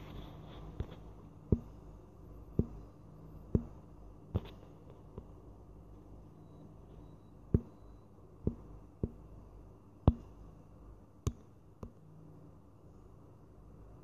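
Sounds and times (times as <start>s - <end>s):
faint low hum: 0.0s - 14.0s
sharp taps: 2.6s - 2.8s, 3.6s - 3.8s, 7.5s - 7.8s, 8.5s - 9.2s.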